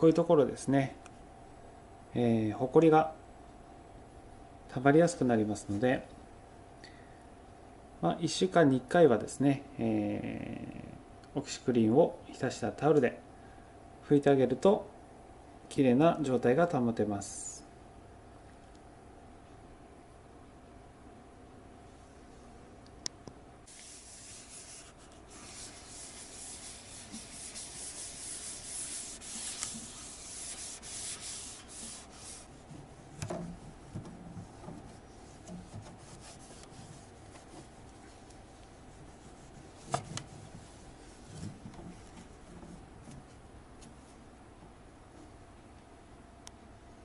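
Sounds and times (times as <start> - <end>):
cloth rubbing on plastic: 23.7 - 43.4.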